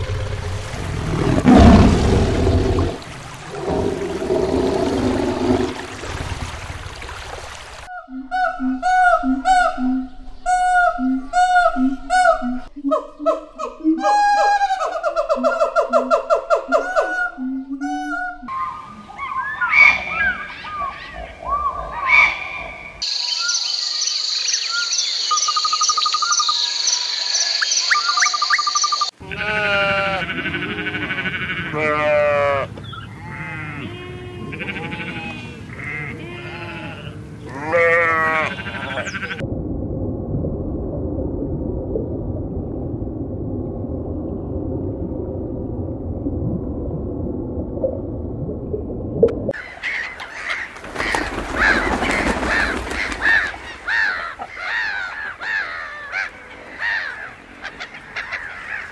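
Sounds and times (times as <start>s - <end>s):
high chirping calls: 18.5s - 29.1s
goats bleating: 29.2s - 32.7s, 33.3s - 39.4s
low rushing noise: 39.2s - 49.5s.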